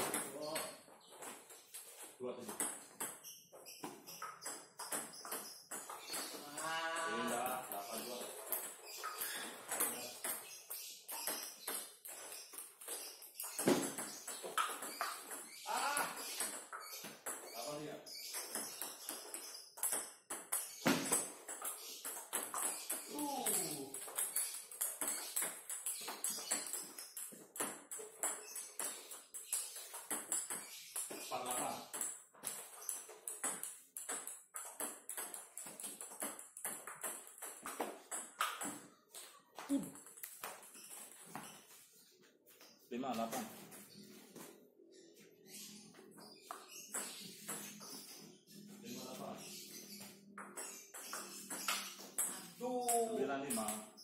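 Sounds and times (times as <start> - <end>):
ball bouncing on table: 2.4 - 41.5, 50.0 - 54.0
ping pong ball hits: 3.8 - 40.7, 50.4 - 54.0.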